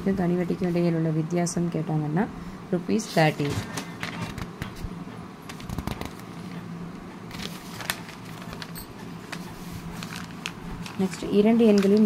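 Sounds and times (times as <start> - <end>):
low steady hum: 0.0 - 12.0
paper pages rustling: 3.3 - 4.8, 5.5 - 6.5, 7.3 - 12.0.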